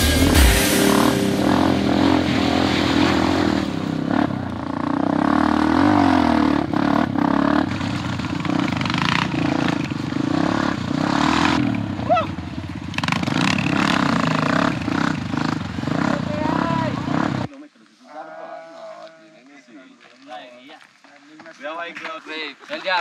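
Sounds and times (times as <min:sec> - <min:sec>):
motorcycle engine revving: 0:00.0 - 0:17.5.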